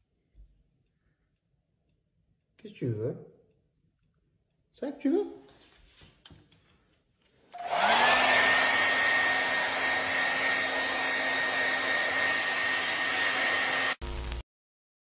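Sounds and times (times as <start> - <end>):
handheld vacuum cleaner whine: 7.5 - 14.4.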